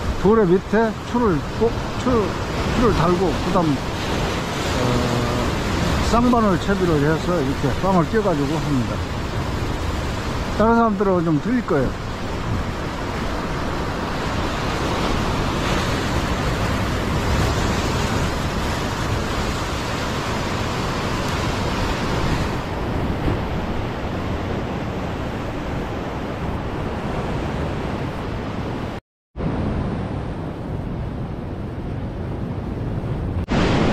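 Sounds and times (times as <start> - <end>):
waves washing over rocks: 0.0 - 26.2
wind on microphone: 1.1 - 6.8, 11.9 - 33.9.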